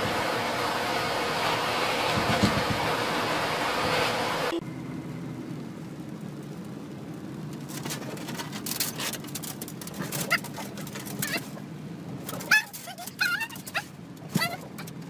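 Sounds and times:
loud rushing noise: 0.0 - 4.9
car cabin hum: 0.0 - 7.4
windshield wipers: 1.6 - 4.2, 5.8 - 15.0
short high squeaks: 12.4 - 15.0.

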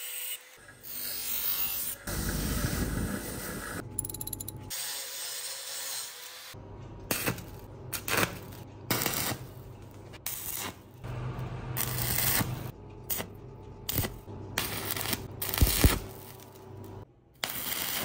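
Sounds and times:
angle grinder cutting: 0.0 - 2.4
welding arc crackling: 7.1 - 9.6, 10.2 - 13.3, 13.9 - 18.0.

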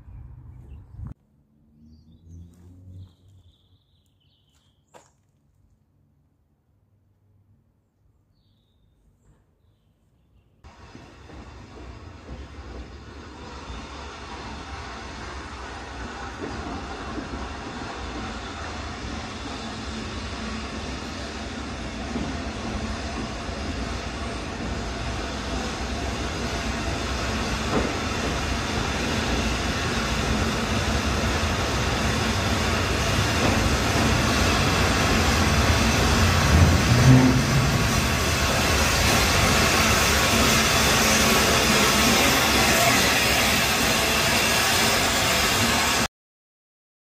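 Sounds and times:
steam locomotive passing: 10.7 - 46.1
train coaches rolling by: 10.7 - 46.1.

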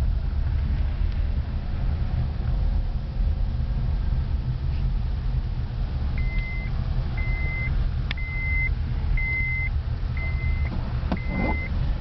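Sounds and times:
car rumbling on dirt road: 0.0 - 12.0
electronic warning beep: 6.2 - 11.8.

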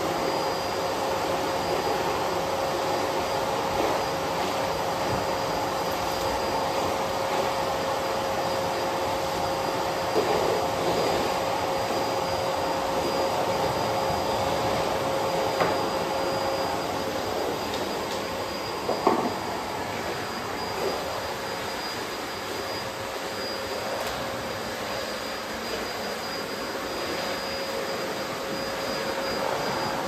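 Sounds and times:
vacuum cleaner humming: 0.0 - 30.0
vacuum nozzle on hard floor: 9.7 - 30.0.

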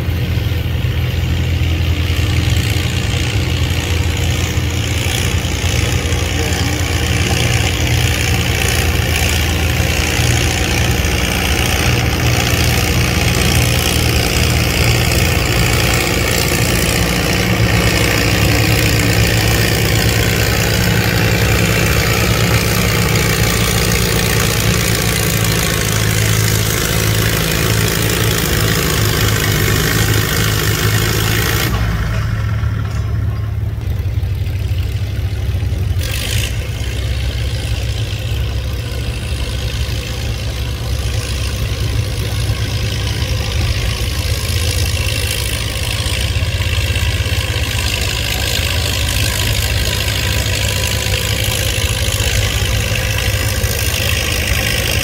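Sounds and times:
tractor engine droning: 0.0 - 55.0.

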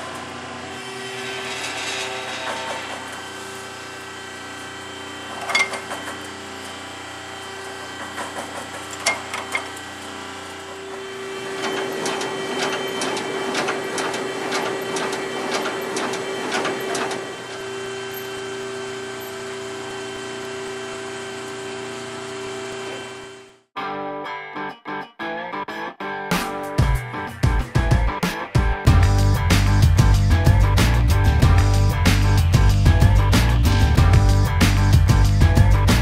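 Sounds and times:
mechanical hum: 0.0 - 23.7.

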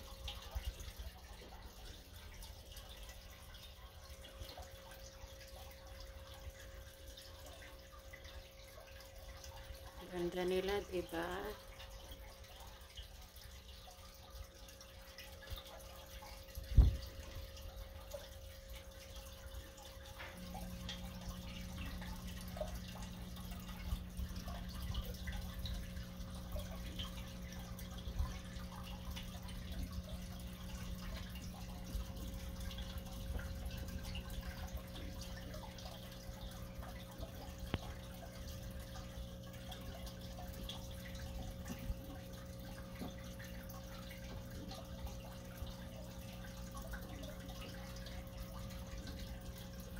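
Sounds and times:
aquarium water trickling: 0.0 - 49.9
steady hum: 14.2 - 49.9.

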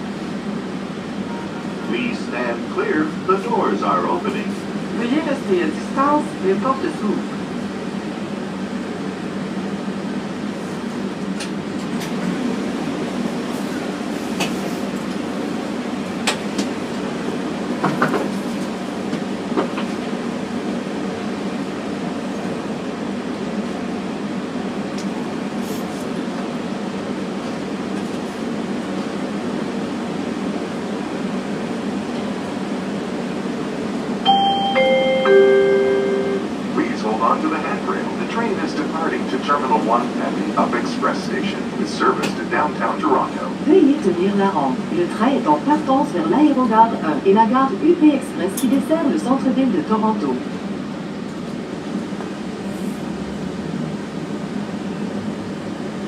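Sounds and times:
train hum and hiss: 0.0 - 56.0
three-note descending chime: 34.3 - 36.5.

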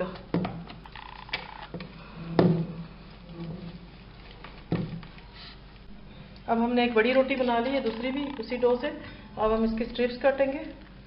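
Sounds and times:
dough rubbing and handling: 2.8 - 5.8.

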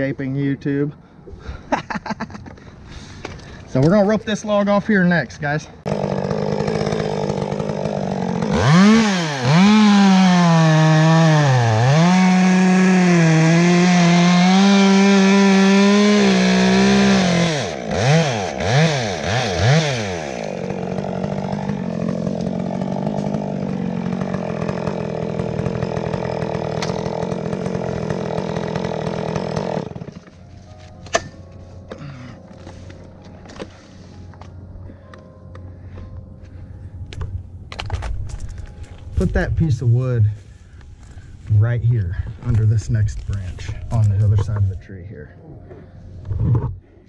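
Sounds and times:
chainsaw cutting wood: 5.8 - 32.1.

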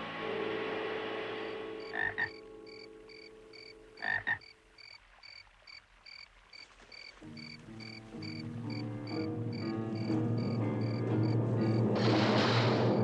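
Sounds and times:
soft music: 0.0 - 4.9, 6.9 - 13.0
frogs or insects chirping: 1.8 - 11.8.

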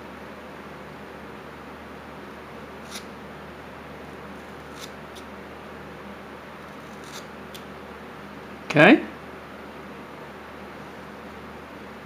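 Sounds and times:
knife slicing wood: 2.8 - 3.1, 6.7 - 7.3.

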